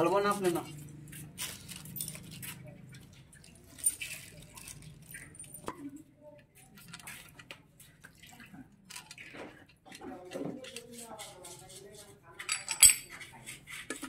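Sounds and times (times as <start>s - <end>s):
metal parts clinking on metal: 1.4s - 2.5s, 12.5s - 13.1s.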